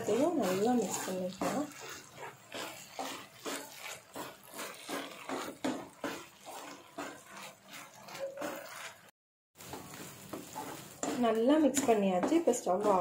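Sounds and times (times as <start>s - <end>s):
spatula scraping sticky food in pan: 0.0s - 13.0s.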